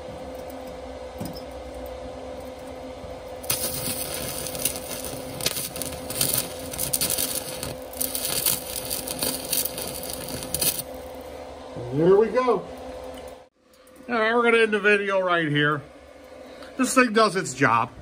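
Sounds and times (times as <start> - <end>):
steady hum: 0.0 - 18.0
welding arc crackling: 3.4 - 11.4.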